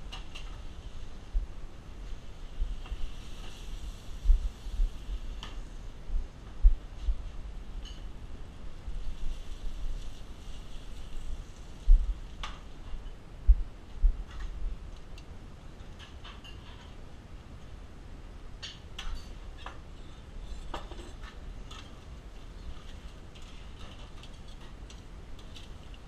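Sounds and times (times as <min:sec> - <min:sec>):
faint low rumble: 0:00.0 - 0:18.6
tongs and pans clinking on griddle: 0:18.6 - 0:19.8.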